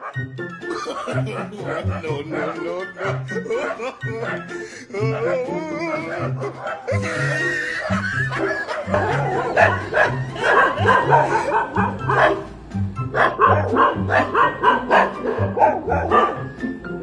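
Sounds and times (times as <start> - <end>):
dog barking: 0.0 - 0.2, 0.8 - 4.5, 6.0 - 7.0, 7.8 - 12.5, 13.1 - 16.6
background music with bass line: 0.2 - 17.0.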